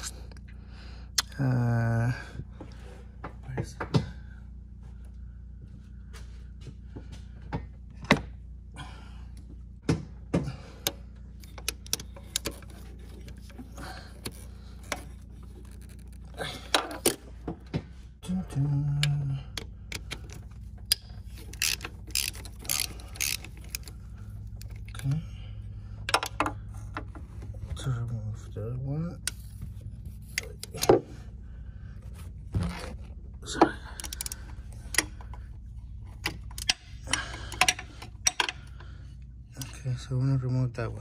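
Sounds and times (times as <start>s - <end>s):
steady low hum: 0.0s - 41.0s
ratchet clicking: 19.9s - 23.9s.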